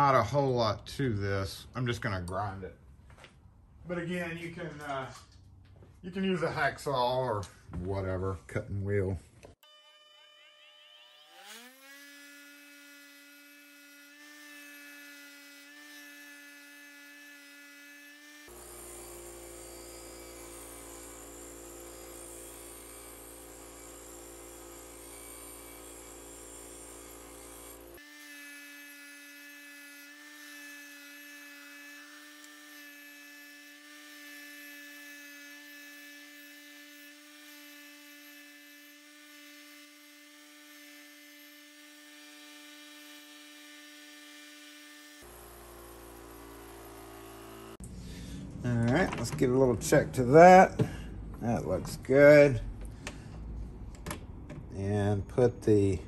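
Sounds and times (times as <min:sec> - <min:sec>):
bench grinder motor whine: 0:09.6 - 0:49.2.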